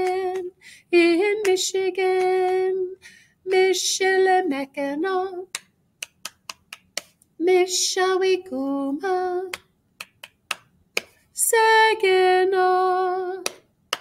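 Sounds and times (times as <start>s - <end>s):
woman singing: 0.0s - 5.6s, 7.4s - 9.6s, 11.4s - 13.6s
finger snaps: 5.5s - 7.3s, 9.5s - 11.2s, 13.4s - 14.0s.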